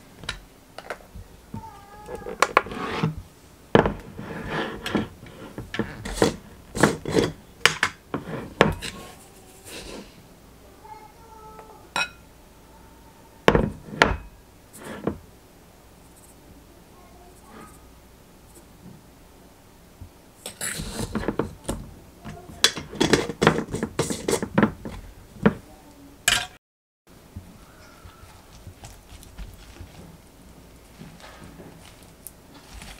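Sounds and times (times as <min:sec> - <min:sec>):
spoon scraping and clinking glass: 0:06.1 - 0:07.4.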